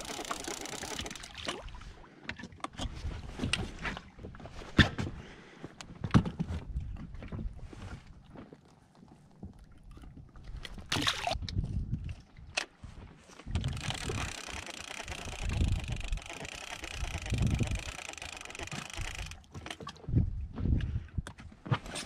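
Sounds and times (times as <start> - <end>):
water sloshing against boat: 0.1 - 22.0
wind noise: 10.5 - 16.3, 16.9 - 18.0, 20.0 - 21.5.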